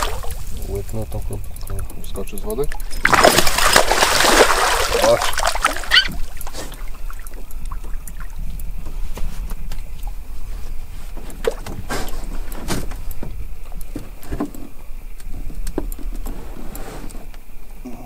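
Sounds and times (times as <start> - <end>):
steady low rumble: 0.0 - 5.4, 6.1 - 14.2
clicks and knocks of handling: 11.2 - 17.5
short scrapes: 16.3 - 17.2.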